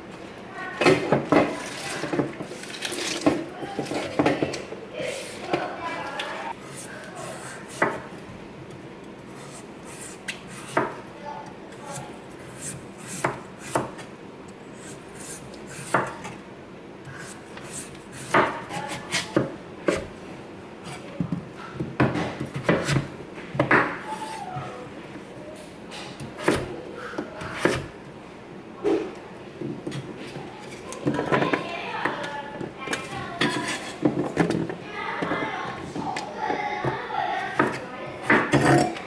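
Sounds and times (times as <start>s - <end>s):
knife scraping peel: 6.6s - 8.0s, 9.3s - 10.9s, 11.7s - 14.1s, 14.8s - 16.3s, 17.1s - 20.0s, 33.4s - 34.0s.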